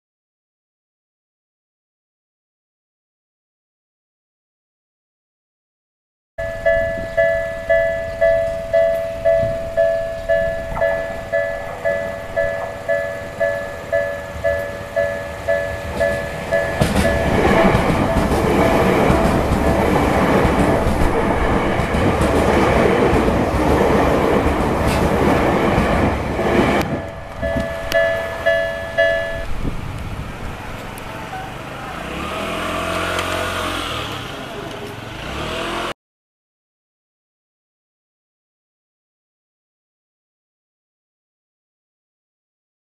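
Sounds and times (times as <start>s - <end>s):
level crossing warning bell: 6.4s - 23.5s, 25.4s - 29.7s
electric train passing: 6.4s - 35.9s.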